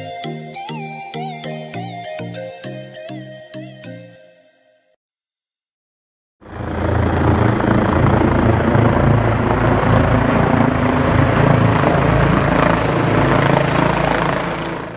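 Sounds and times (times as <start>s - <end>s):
helicopter rotor: 6.4s - 14.9s.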